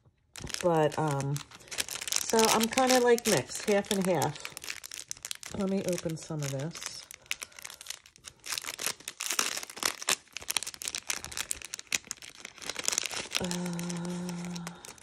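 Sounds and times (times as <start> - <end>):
cellophane crinkling: 0.0 - 15.0.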